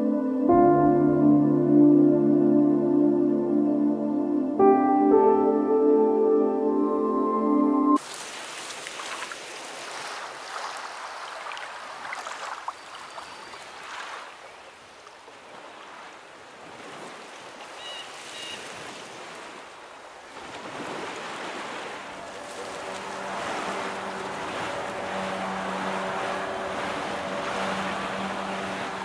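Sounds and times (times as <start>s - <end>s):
waves breaking: 8.0s - 29.0s.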